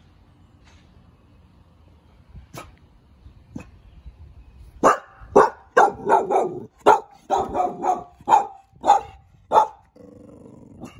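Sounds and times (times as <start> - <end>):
dog barking: 4.8 - 9.9.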